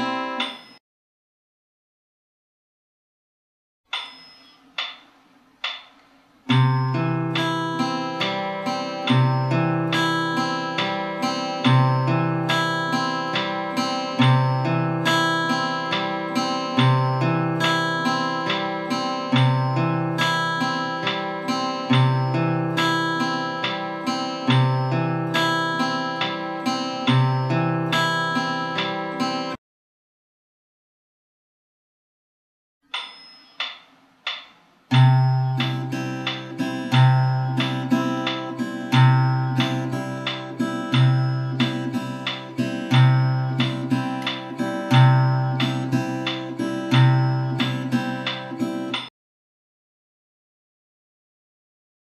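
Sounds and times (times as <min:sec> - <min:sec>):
fingerpicked acoustic guitar: 0:00.0 - 0:00.4, 0:06.5 - 0:29.6, 0:34.9 - 0:49.1
count-in clicks: 0:00.0 - 0:00.8, 0:03.9 - 0:29.4, 0:32.9 - 0:49.1.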